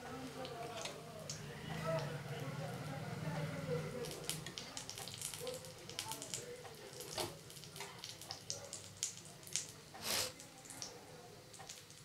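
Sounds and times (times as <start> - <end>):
oil crackling and popping: 4.0 - 12.0.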